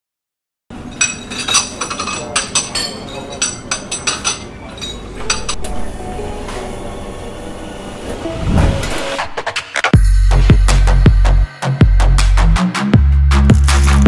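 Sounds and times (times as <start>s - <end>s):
cups and glasses clinking: 0.8s - 5.6s
background hubbub: 0.8s - 8.3s
music: 5.2s - 14.0s.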